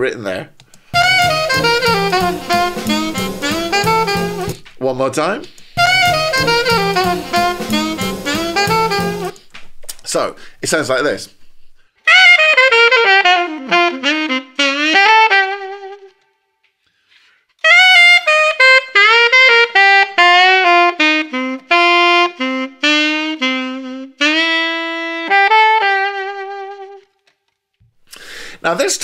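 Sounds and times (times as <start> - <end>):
alto saxophone playing jazz: 0.8 - 4.7, 5.4 - 9.5, 12.0 - 16.3, 17.6 - 27.2.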